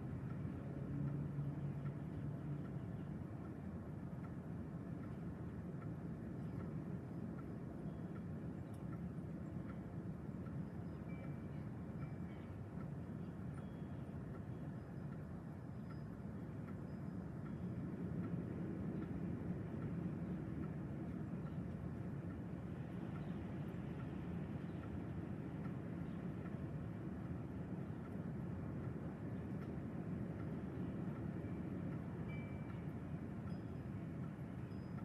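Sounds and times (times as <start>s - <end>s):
strong gusty wind: 17.2s - 35.0s.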